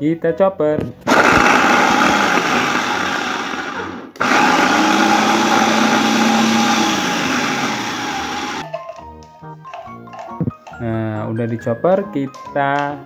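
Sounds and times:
food chopper blades whirring: 1.0 - 8.6.

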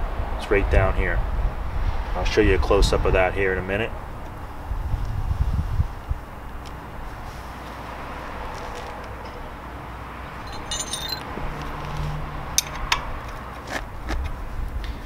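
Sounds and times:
metal wrench clinking: 10.4 - 11.4, 12.6 - 13.3.

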